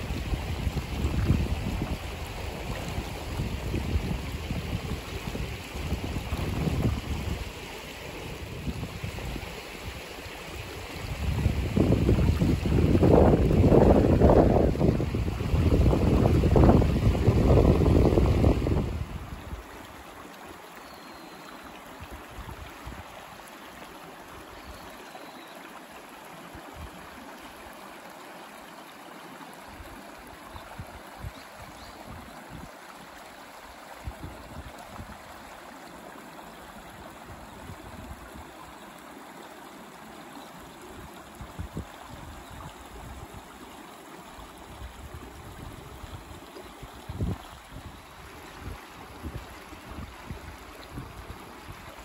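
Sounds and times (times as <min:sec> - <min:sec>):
creek water babbling over stones: 0:00.0 - 0:52.0.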